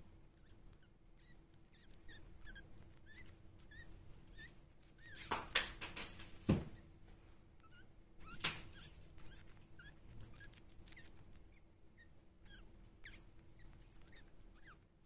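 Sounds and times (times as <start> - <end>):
hamster nibbling and crunching: 0.0 - 15.0
short high squeaks: 7.6 - 11.2.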